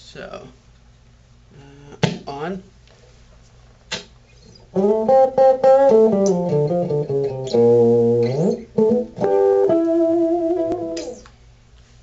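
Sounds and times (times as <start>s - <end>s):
electric guitar picked notes: 4.7s - 11.3s
amp click: 5.9s - 11.4s.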